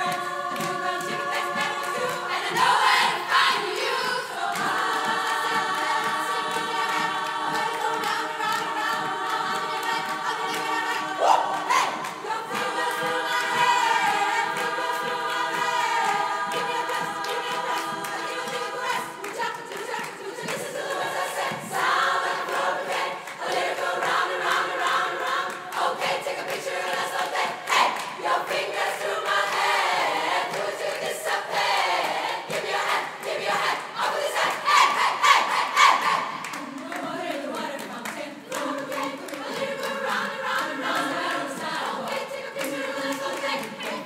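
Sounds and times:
rhythmic pulse: 0.0s - 27.5s
women's choir singing: 0.0s - 44.0s.

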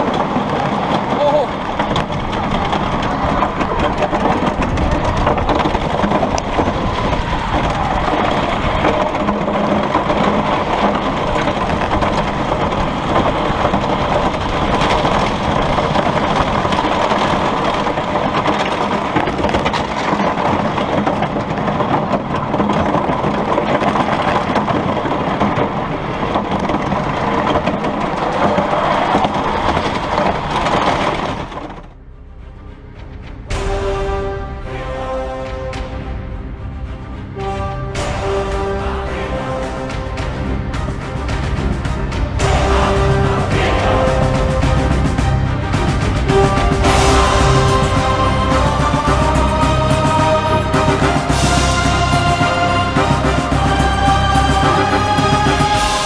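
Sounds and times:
roller coaster running on track: 0.0s - 56.0s.

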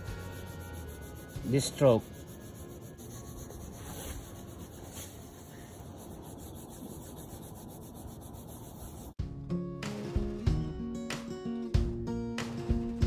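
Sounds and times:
pencil scratching on paper: 0.0s - 9.2s.

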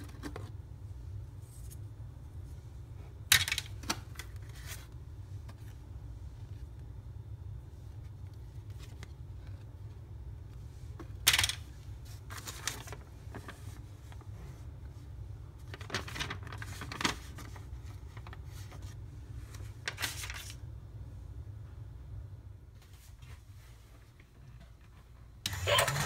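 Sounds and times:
steady low hum: 0.0s - 26.0s
paper and cardboard rustling: 3.9s - 6.7s, 11.4s - 14.6s, 15.6s - 20.6s.

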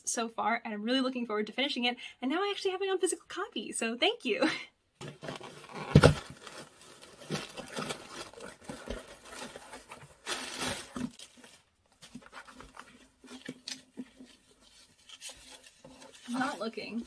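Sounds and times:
cardboard box being opened: 5.0s - 17.0s
plastic packaging rustling: 5.0s - 17.0s.

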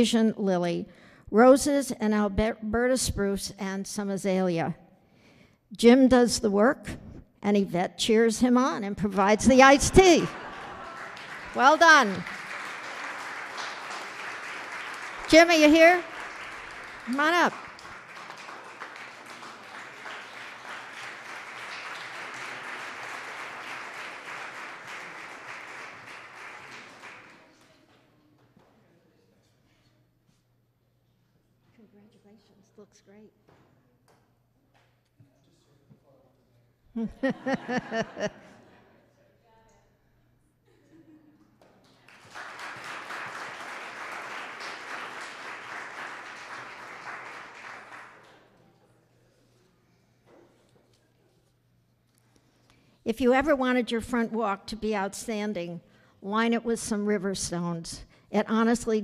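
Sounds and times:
audience applauding: 10.0s - 27.7s, 41.8s - 48.6s.

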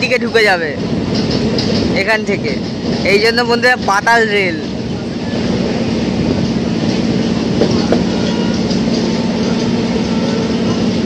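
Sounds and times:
train wheels on rail: 0.0s - 11.0s
clicks over rail joints: 0.8s - 4.0s.

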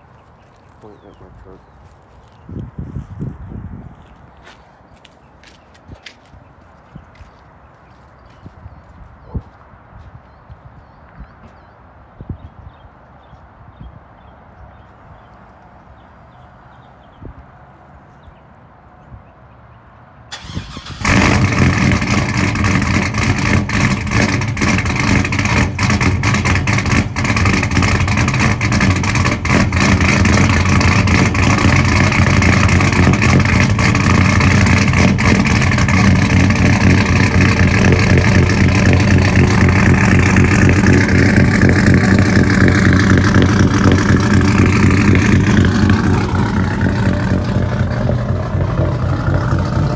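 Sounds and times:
truck engine cranking and idling: 20.3s - 49.9s.

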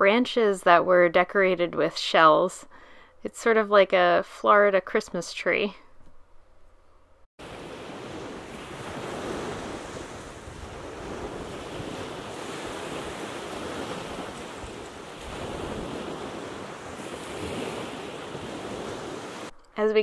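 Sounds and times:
small waves washing onto sand: 7.4s - 19.5s
wind buffeting microphone: 7.5s - 19.5s.

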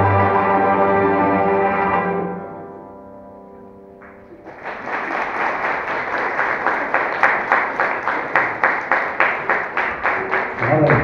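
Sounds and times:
instrument ensemble chord: 0.0s - 4.3s
audience applause: 4.0s - 11.0s.

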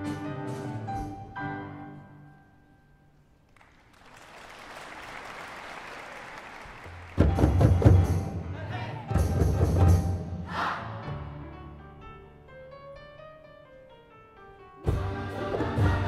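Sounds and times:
drums and percussion ensemble: 6.8s - 10.8s, 14.8s - 16.0s.

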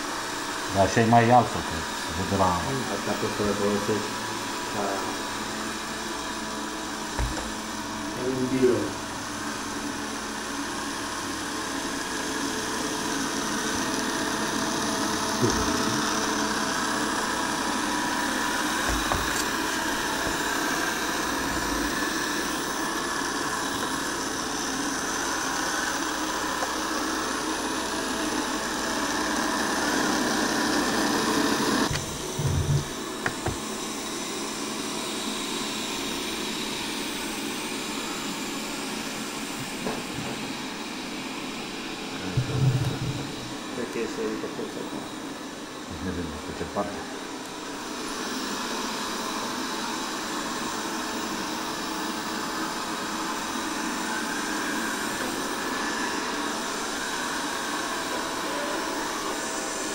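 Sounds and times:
robot vacuum whirring: 1.1s - 34.4s.

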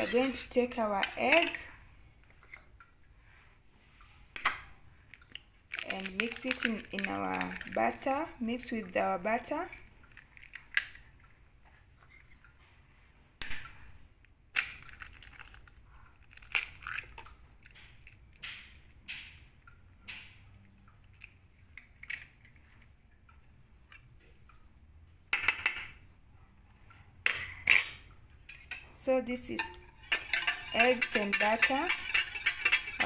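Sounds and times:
egg cracking against steel bowl: 4.4s - 8.1s, 27.2s - 33.0s.

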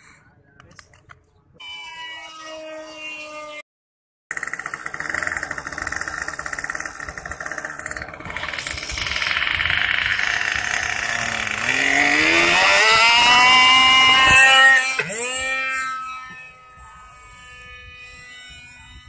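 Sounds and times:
model airplane engine running: 4.3s - 19.0s.

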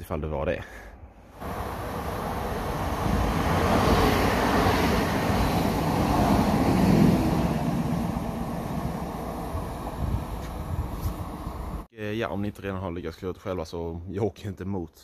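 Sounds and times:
train rumbling past: 1.3s - 11.9s.

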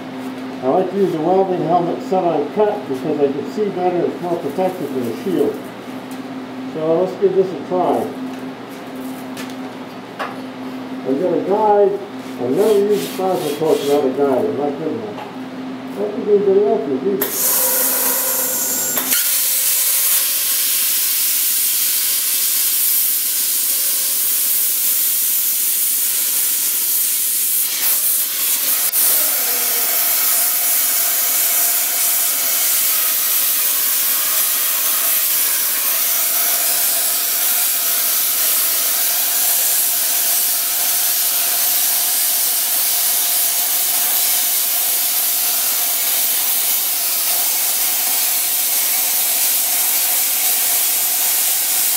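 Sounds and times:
plasma torch hissing: 17.2s - 51.9s.

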